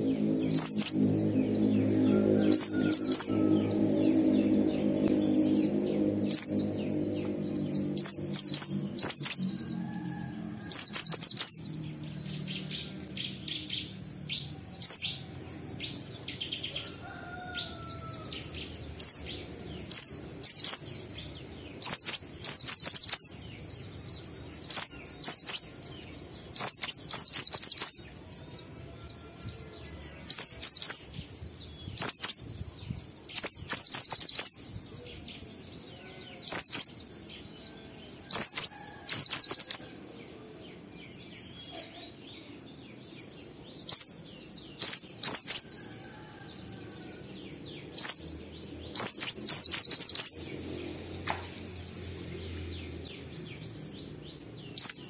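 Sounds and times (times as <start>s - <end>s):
white-eye bird chirping: 0.0s - 9.6s, 10.7s - 14.0s, 14.8s - 16.6s, 18.4s - 25.7s, 26.4s - 28.1s, 30.3s - 31.0s, 32.0s - 32.4s, 33.3s - 34.6s, 36.4s - 37.0s, 38.3s - 39.8s, 43.8s - 45.8s, 47.9s - 50.7s, 54.7s - 55.0s.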